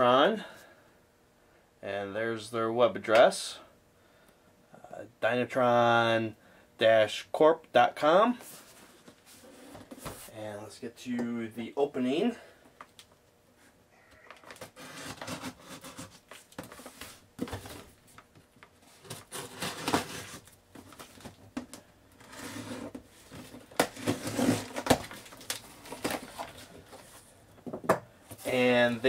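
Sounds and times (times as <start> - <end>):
cardboard scraping and rustling: 14.5 - 18.0, 18.9 - 21.4, 22.2 - 27.3
box cutter slicing tape: 19.2 - 20.4.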